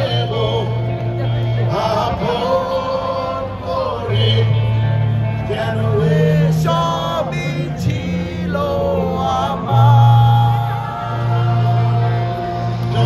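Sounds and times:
live band music with singing: 0.0 - 13.0.

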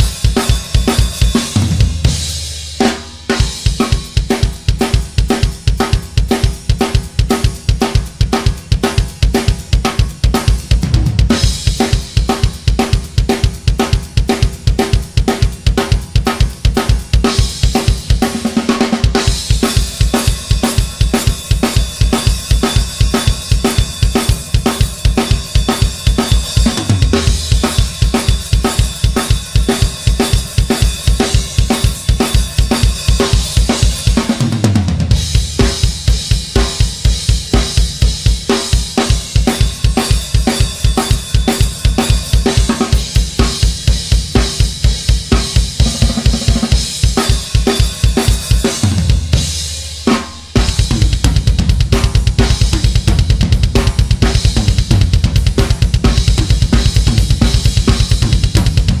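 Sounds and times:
drum kit played fast: 0.0 - 59.0.

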